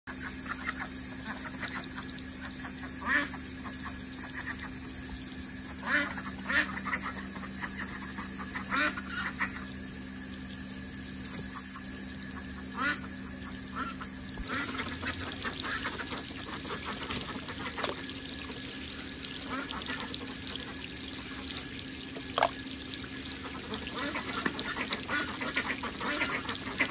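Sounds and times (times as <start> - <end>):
ducks quacking: 13.8 - 26.9.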